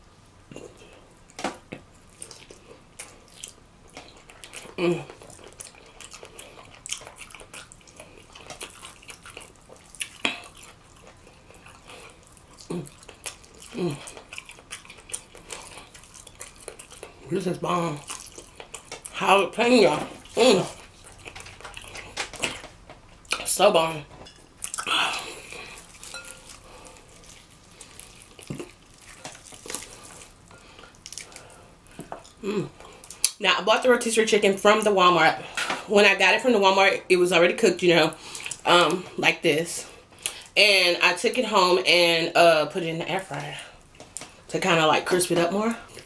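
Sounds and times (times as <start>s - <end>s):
wet chewing and lip-smacking: 0.5s - 19.2s, 20.1s - 23.5s, 24.3s - 33.4s.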